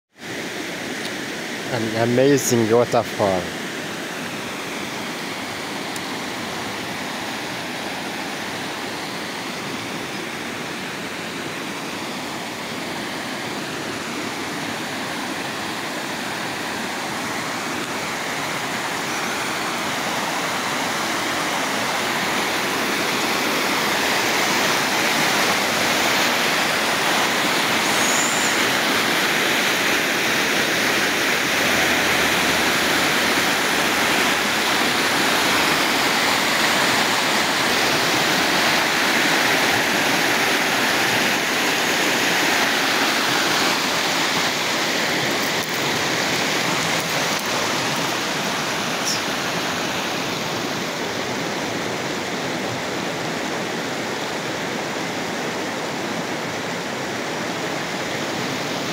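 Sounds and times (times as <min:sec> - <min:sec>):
rapids rushing over rock: 0:00.2 - 0:58.9.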